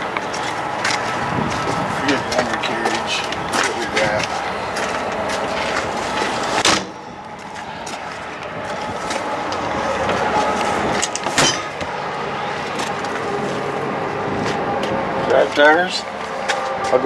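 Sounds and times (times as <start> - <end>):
steady background noise: 0.0 - 17.0
metal door banging shut: 6.6 - 7.0, 11.0 - 11.9.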